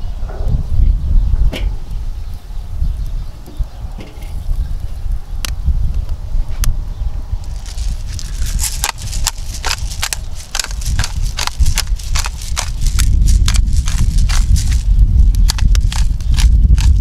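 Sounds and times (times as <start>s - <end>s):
wind buffeting microphone: 0.0s - 17.0s
pepper mill grinding: 7.4s - 17.0s.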